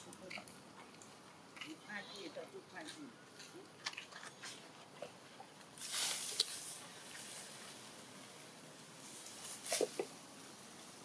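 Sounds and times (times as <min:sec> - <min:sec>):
rustling hiss: 0:05.6 - 0:11.0.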